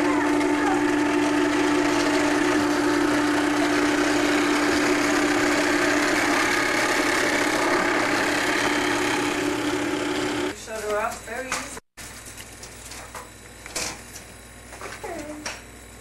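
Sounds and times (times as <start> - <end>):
steady motor hum: 0.0 - 11.5.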